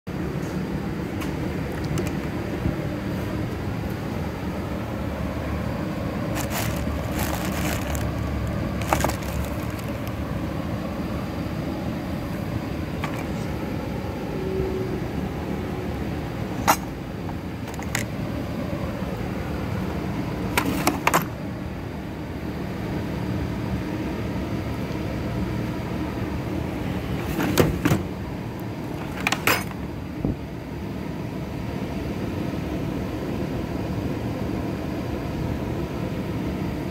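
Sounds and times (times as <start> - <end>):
low background rumble: 1.0 - 20.6
metal tool chest drawers opening: 6.3 - 10.1, 13.0 - 13.5, 17.6 - 18.1, 20.6 - 21.3, 27.2 - 28.1, 28.9 - 29.8
metal tools clanking and rattling: 8.8 - 10.1, 16.6 - 16.9, 17.7 - 18.0, 28.9 - 29.8.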